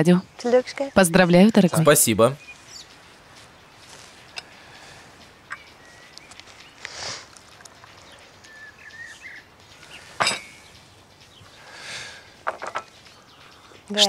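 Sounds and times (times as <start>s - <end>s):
bird calling: 0.0s - 14.0s
china clinking: 10.2s - 10.7s.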